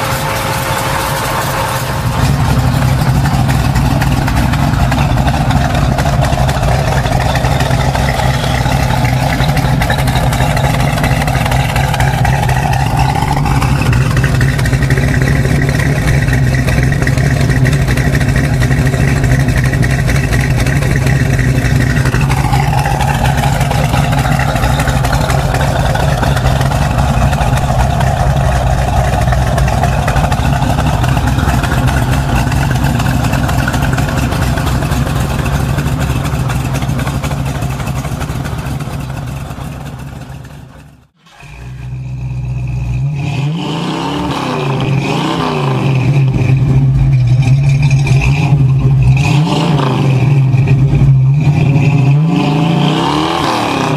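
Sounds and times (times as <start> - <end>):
car engine idling: 0.0 - 43.5, 44.1 - 53.9.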